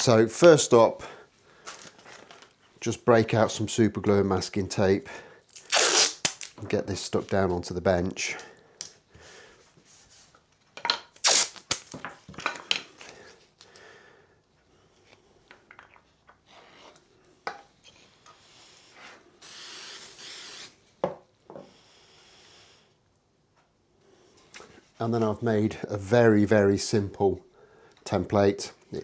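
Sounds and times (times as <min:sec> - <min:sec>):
aerosol can spraying: 0:19.4 - 0:20.8.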